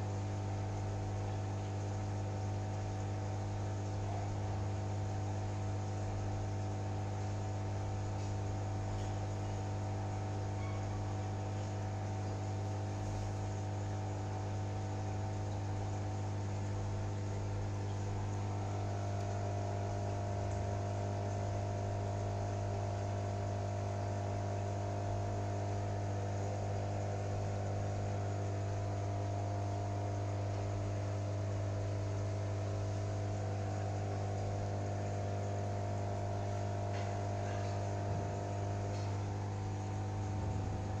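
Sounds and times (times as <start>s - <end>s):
aquarium filter pump hum: 0.0s - 41.0s
higher electrical tone: 16.4s - 41.0s.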